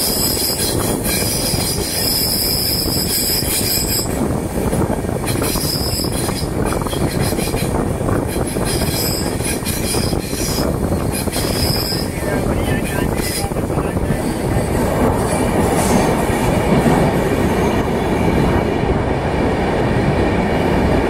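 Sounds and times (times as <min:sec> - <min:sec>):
train wheels rumbling on rails: 0:00.0 - 0:21.0
metallic wheel squeal: 0:05.4 - 0:07.6, 0:08.4 - 0:12.2.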